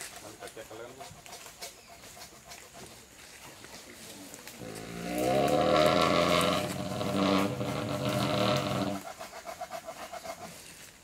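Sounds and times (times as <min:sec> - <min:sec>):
elephant rumbling: 0:04.6 - 0:09.1.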